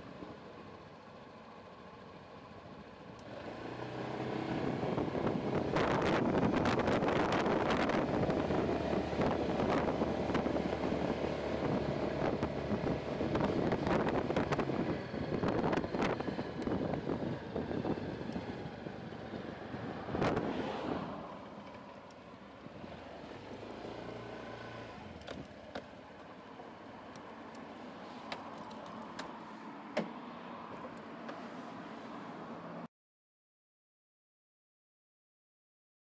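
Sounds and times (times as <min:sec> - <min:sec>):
road noise: 0:00.0 - 0:32.9
scooter engine accelerating: 0:03.2 - 0:26.5
wind buffeting microphone: 0:04.6 - 0:21.2.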